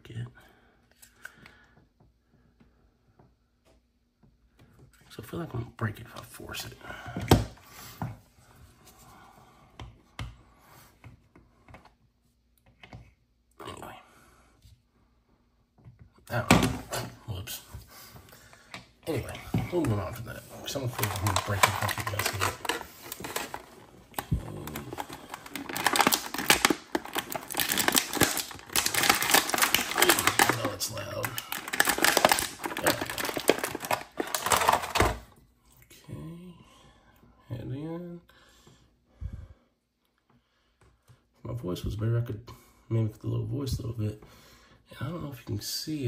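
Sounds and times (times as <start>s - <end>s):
plastic packaging crinkling: 19.1s - 35.3s.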